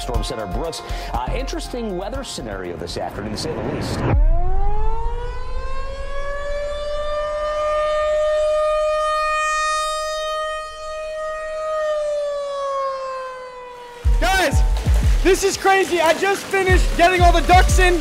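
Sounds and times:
tornado siren wailing: 4.0s - 17.9s.

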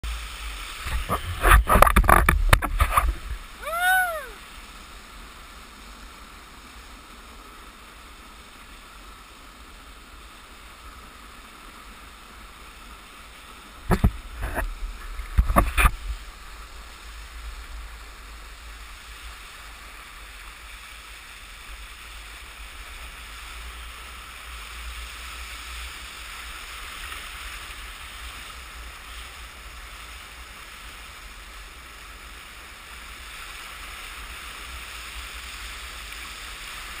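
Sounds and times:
water rushing and gurgling: 0.0s - 37.0s.

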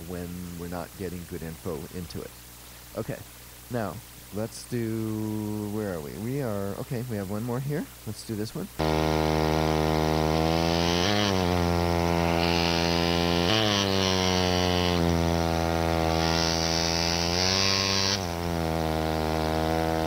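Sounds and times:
pneumatic chisel buzzing: 8.8s - 20.0s.

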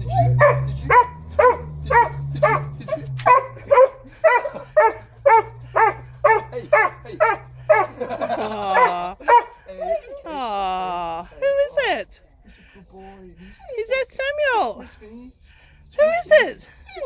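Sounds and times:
dog barking high: 0.0s - 9.6s.

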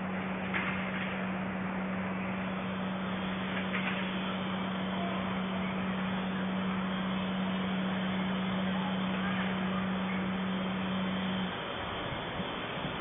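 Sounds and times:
constant low hum: 0.0s - 13.0s
steady hiss: 0.0s - 13.0s.

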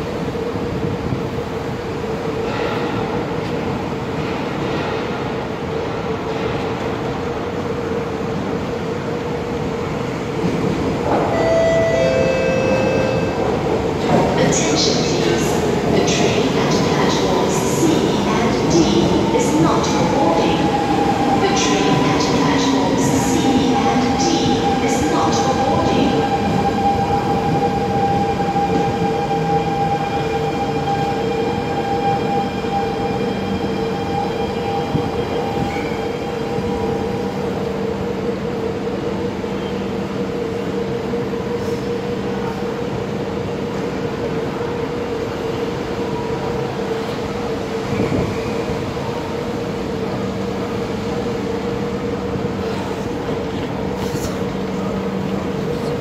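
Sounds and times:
train electrical equipment humming: 0.0s - 56.0s.

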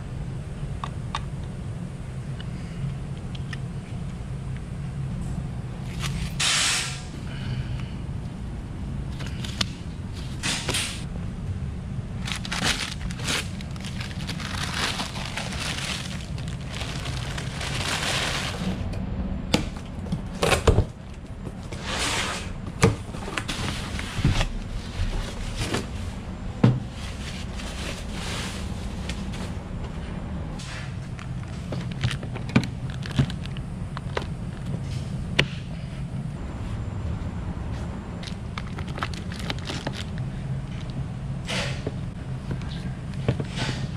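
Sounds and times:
steady low hum: 0.0s - 43.9s
packing paper rustling: 12.2s - 18.8s, 26.9s - 29.5s, 31.2s - 34.7s, 38.2s - 40.9s.

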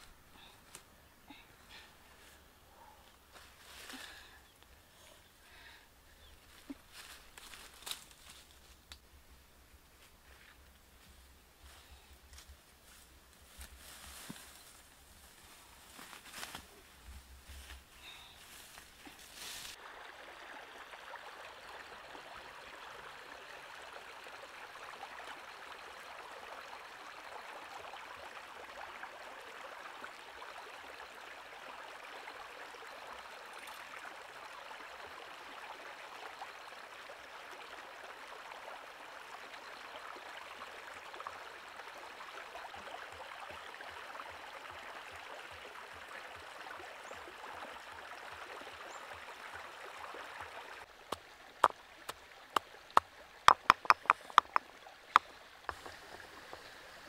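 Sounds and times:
stream flowing over rocks: 19.7s - 57.0s.

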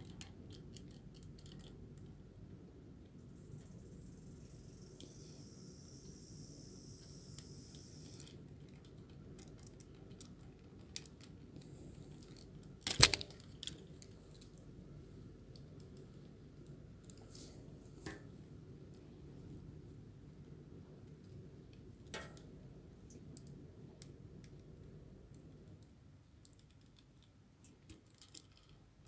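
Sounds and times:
plastic toy clicks and snaps: 12.8s - 13.4s.

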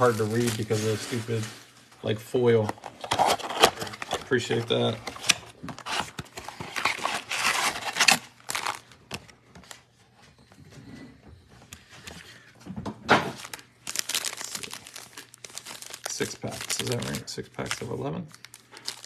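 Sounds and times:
cardboard box tearing: 5.0s - 8.8s.

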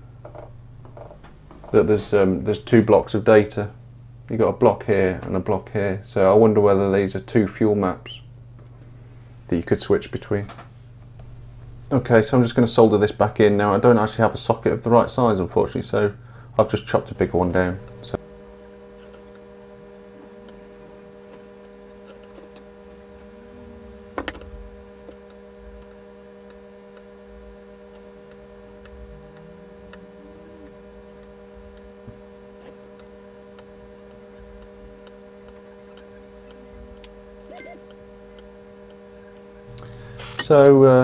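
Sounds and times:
steady electrical hum: 0.0s - 41.0s
soldering iron ticks and clicks: 18.8s - 19.6s, 20.5s - 23.3s, 24.3s - 30.1s, 30.9s - 40.7s.

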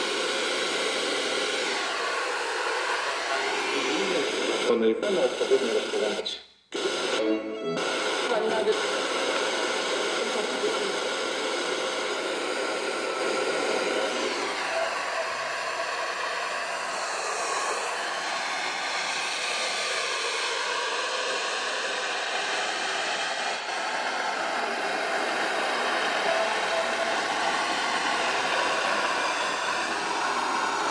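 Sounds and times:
radio static hissing: 0.0s - 30.9s.

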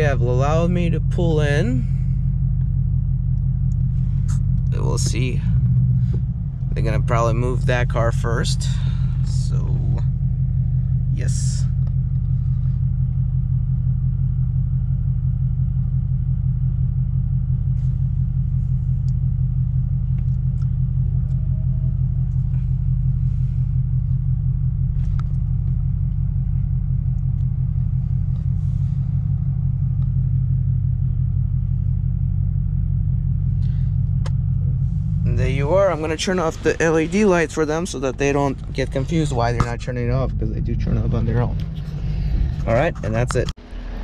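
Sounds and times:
car engine idling: 0.0s - 44.0s.

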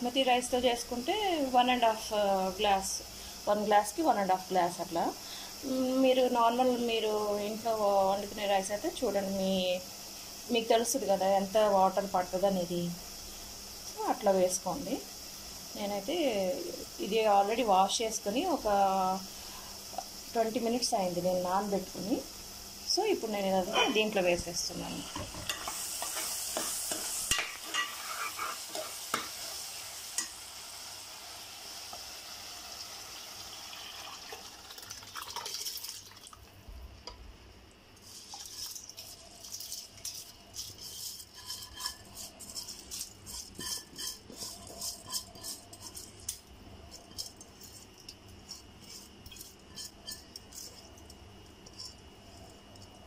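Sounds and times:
food sizzling in a pot: 0.0s - 53.0s
spoon scraping and stirring: 25.0s - 30.4s, 38.0s - 53.0s
spoon clinking against pot: 41.2s - 50.8s.

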